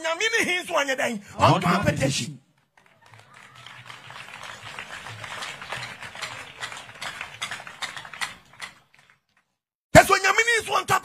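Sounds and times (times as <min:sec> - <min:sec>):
crowd applauding: 0:02.6 - 0:09.6.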